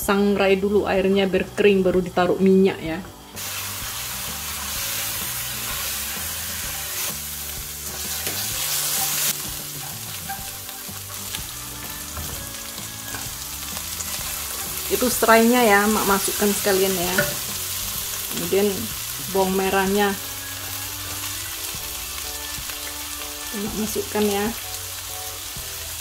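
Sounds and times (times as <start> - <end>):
spice paste sizzling in a pan: 3.3 - 26.0
spatula scraping a pan: 5.0 - 11.4.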